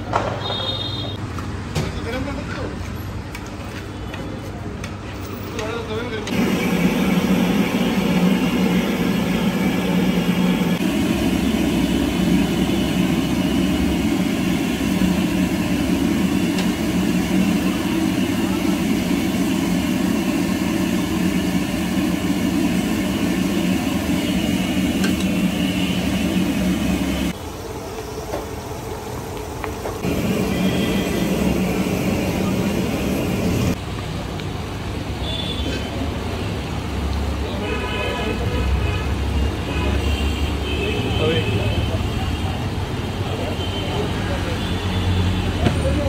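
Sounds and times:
burner flames roaring: 6.3 - 33.8.

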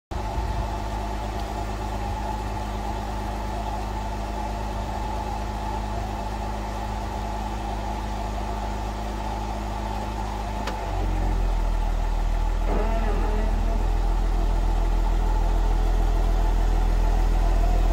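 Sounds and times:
vehicle low groan: 0.1 - 17.9
click: 10.6 - 10.8.

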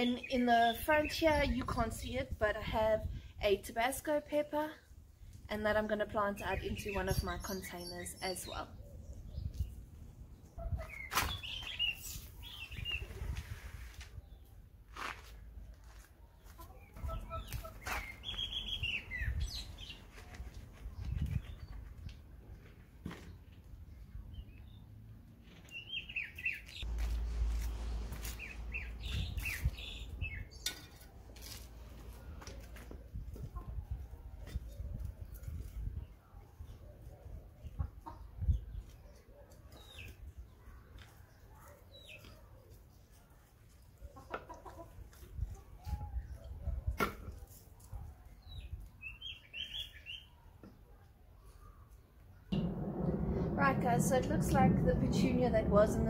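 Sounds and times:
birds calling: 10.4 - 13.2, 16.4 - 20.1
leaves rustling: 26.8 - 30.1.

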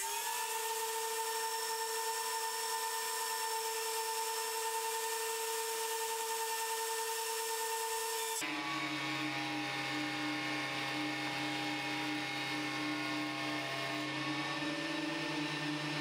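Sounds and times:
thickness planer humming: 7.8 - 16.0.

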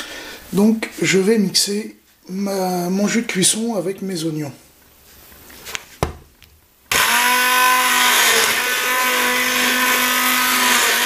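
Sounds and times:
immersion blender motor running: 6.9 - 11.0.

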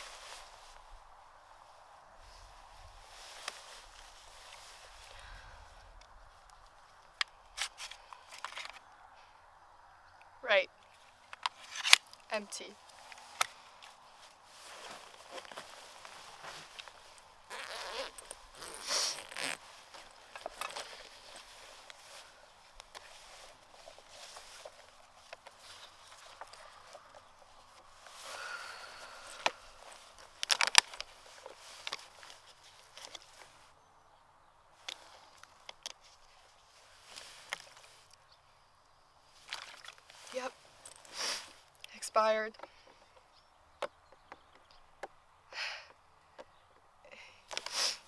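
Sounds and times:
rustling of handled supplies: 0.0 - 1.6, 2.2 - 9.0, 10.8 - 33.8, 34.8 - 38.2, 39.2 - 44.7
faint hiss: 40.1 - 42.4, 47.1 - 48.0.

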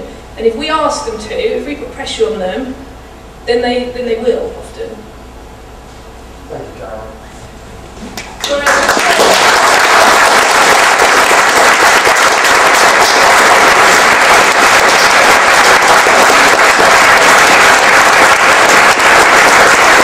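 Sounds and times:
large audience applauding: 8.2 - 20.0.

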